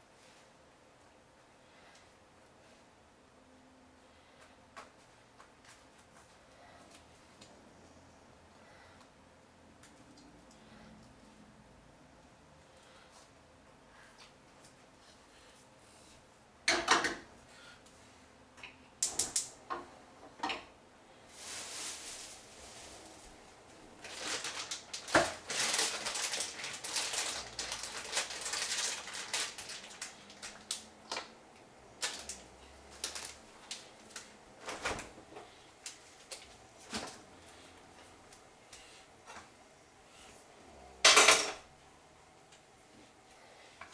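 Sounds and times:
rustling: 21.2 - 30.8
utensils and dishes clattering: 41.1 - 41.6.

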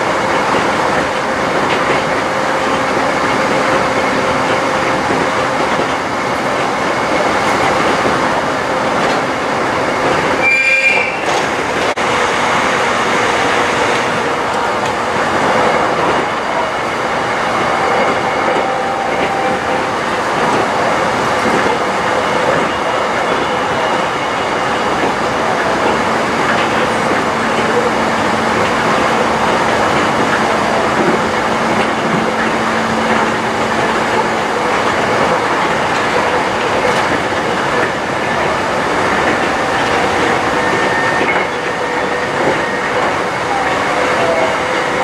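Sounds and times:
train wheels rumbling on rails: 0.0 - 45.0.

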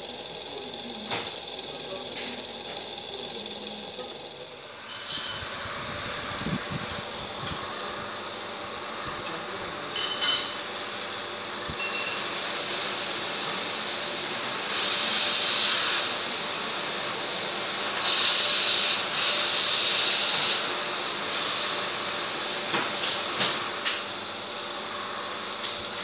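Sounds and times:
boring machine cutter scraping metal: 0.0 - 7.6.

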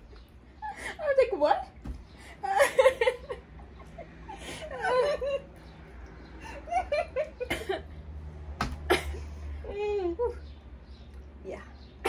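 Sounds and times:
women laughing: 0.5 - 1.3, 2.2 - 5.7, 6.4 - 8.0.

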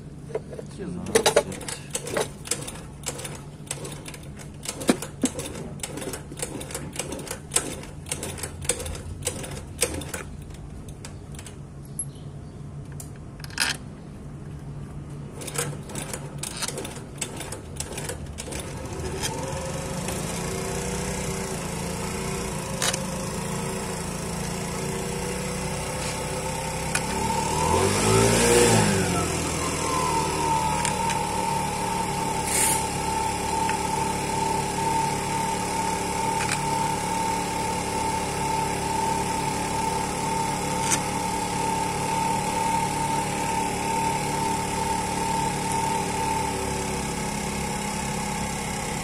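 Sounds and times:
steady mechanical hum: 0.0 - 47.0.

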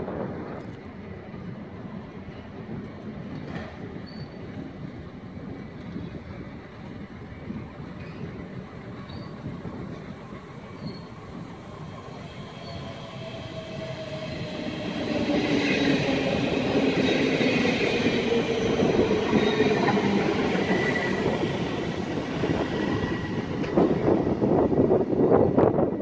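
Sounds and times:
electric train running past: 0.0 - 26.0
wind buffeting microphone: 0.0 - 26.0
wheels and brakes squealing: 3.9 - 4.5, 7.9 - 16.0.

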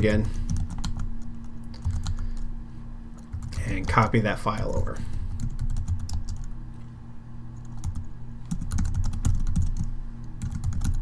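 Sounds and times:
keyboard typing: 0.0 - 2.5, 3.2 - 4.0, 5.3 - 6.9, 7.6 - 11.0
low steady hum: 0.0 - 11.0.

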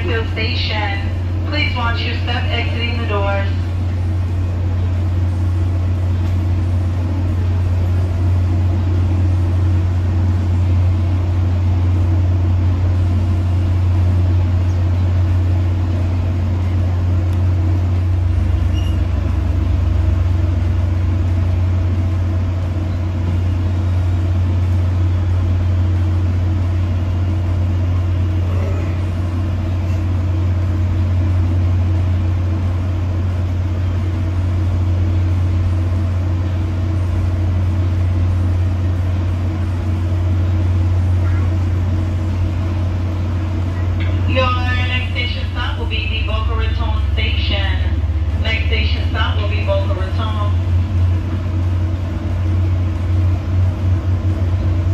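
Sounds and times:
low machine drone: 0.0 - 54.9
deeper drone note: 12.6 - 32.4, 43.7 - 54.9.

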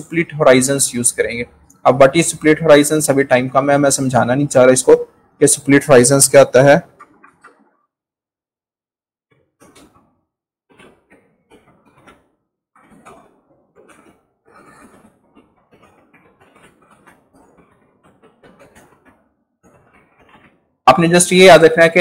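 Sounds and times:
faint keyboard typing: 0.0 - 7.9.

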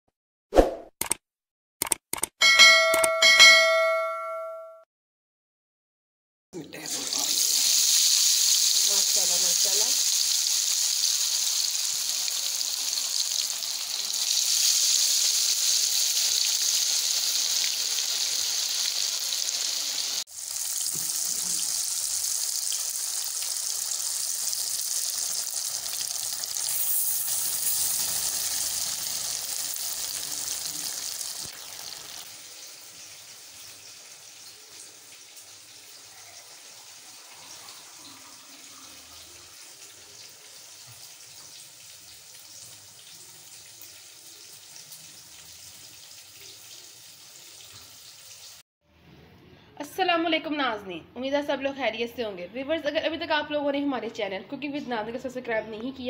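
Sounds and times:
fish deep-frying in hot oil: 6.8 - 48.6.

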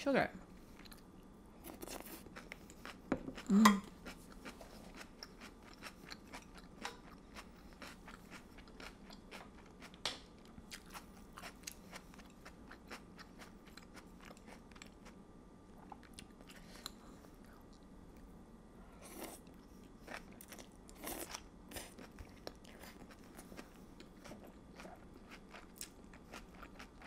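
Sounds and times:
chewing noodles: 0.8 - 10.0, 19.0 - 27.0.

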